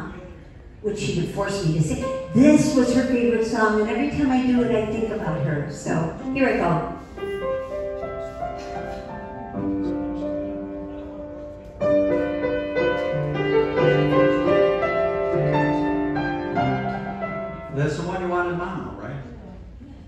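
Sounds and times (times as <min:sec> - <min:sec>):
solo piano: 0:04.1 - 0:17.8.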